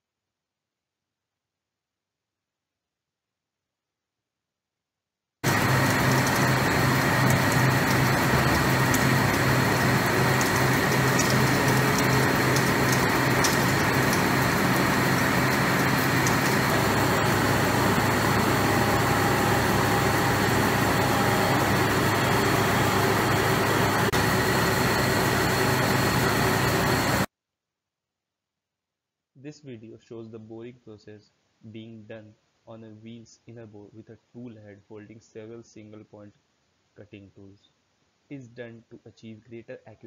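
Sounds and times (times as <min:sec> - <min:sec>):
boring machine running: 0:05.4 - 0:27.3
thin high whine: 0:05.4 - 0:27.3.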